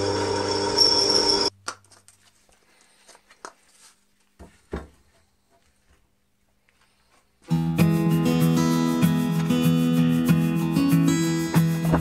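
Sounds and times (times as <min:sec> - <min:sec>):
drill press drilling steel: 0:00.0 - 0:01.5.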